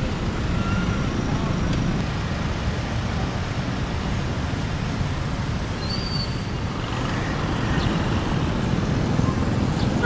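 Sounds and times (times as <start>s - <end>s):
road traffic noise: 0.0s - 10.0s.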